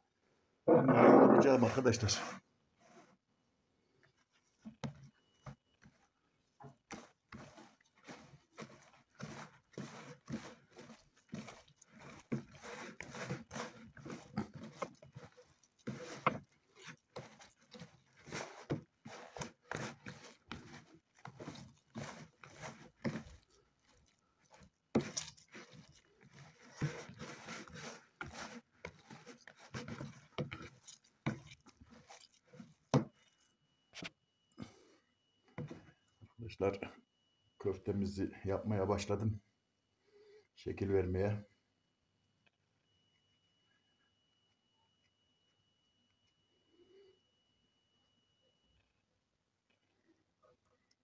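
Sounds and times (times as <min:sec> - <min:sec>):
hands kneading wet meat mixture: 0:04.2 - 0:33.2.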